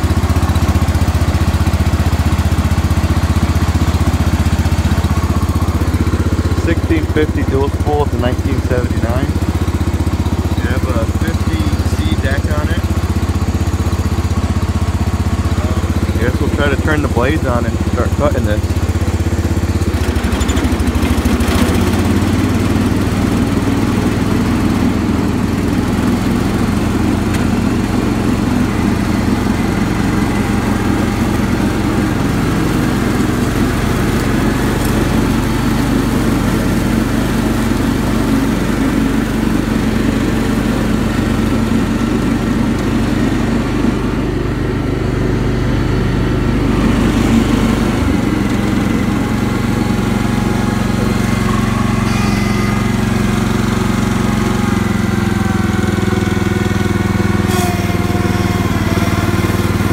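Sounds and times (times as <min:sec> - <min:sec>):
lawn tractor engine running: 0:00.0 - 0:59.9
mower blades cutting grass: 0:00.0 - 0:59.9.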